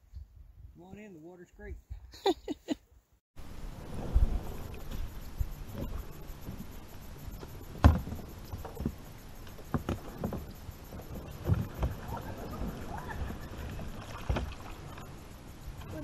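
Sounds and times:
water sloshing and rustling: 0:03.4 - 0:16.0
hollow knocks of kayak hull: 0:07.4 - 0:12.2.

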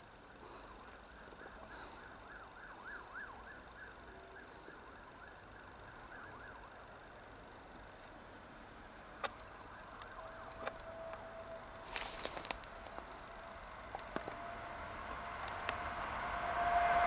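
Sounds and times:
distant siren yelping: 0:01.1 - 0:07.2, 0:09.5 - 0:11.8.

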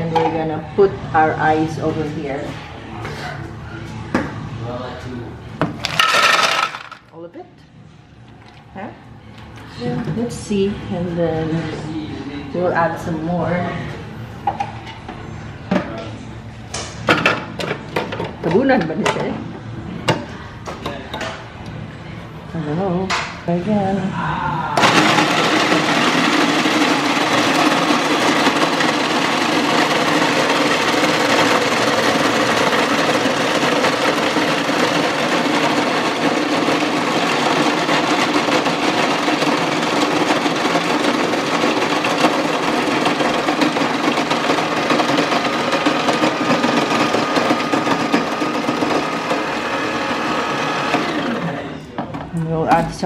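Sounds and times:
electric ice shaver shaving ice: 0:06.0 - 0:07.0, 0:24.8 - 0:51.7.

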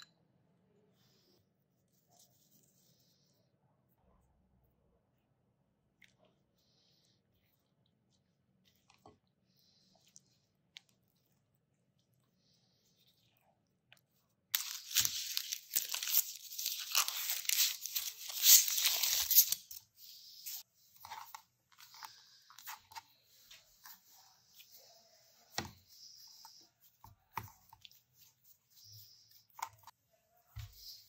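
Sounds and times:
wrapping crackling and tearing: 0:14.5 - 0:19.9.

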